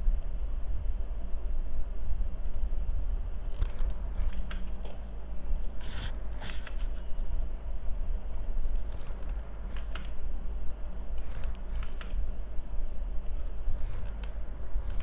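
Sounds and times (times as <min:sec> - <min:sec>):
low background hum: 0:00.0 - 0:15.0
keyboard and mouse clicks: 0:03.5 - 0:05.0, 0:08.8 - 0:10.2, 0:11.2 - 0:12.2, 0:13.2 - 0:15.0.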